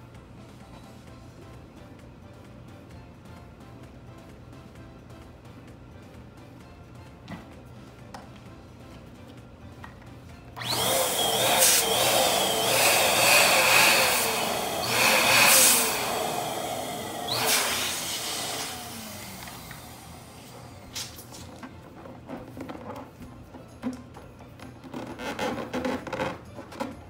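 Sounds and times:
electric balloon pump running: 10.6 - 22.8.

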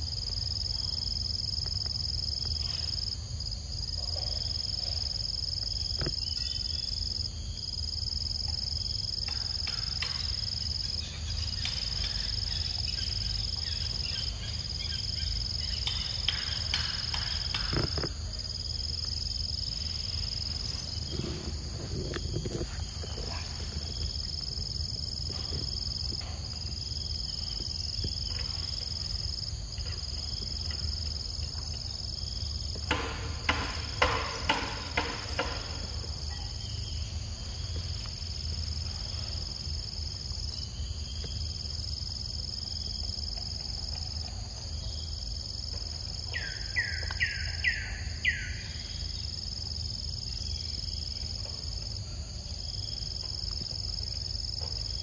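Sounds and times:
insects droning: 0.0 - 55.0
faint rustles and clicks: 20.1 - 26.6.

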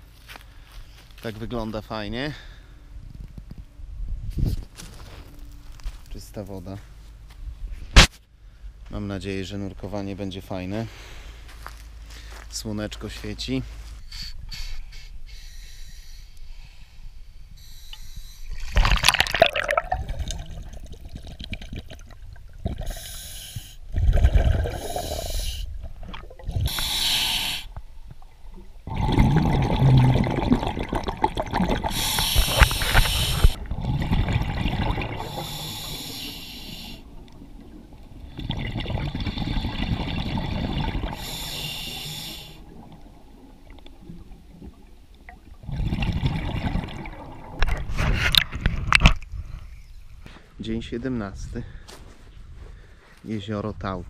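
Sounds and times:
diver breathing through regulator: 14.0 - 18.7, 22.8 - 25.7, 26.5 - 27.8, 31.8 - 34.4, 35.0 - 37.1, 41.0 - 42.7
bubbling exhalations: 18.1 - 49.8.

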